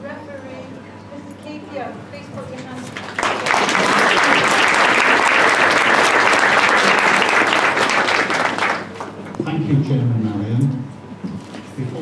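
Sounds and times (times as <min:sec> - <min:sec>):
audience applauding: 0:03.0 - 0:09.3.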